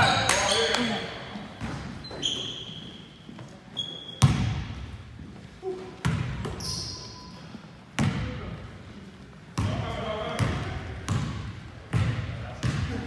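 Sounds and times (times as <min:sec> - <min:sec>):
sneakers squeaking on court: 0:00.0 - 0:05.3, 0:05.9 - 0:08.3
basketball bouncing on wooden floor: 0:10.4 - 0:13.0.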